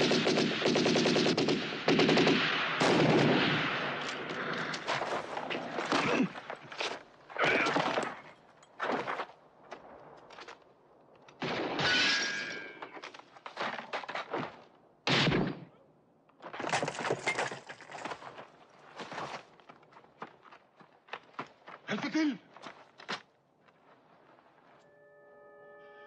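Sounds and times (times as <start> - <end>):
gunshots: 0.0 - 6.4, 15.1 - 15.7.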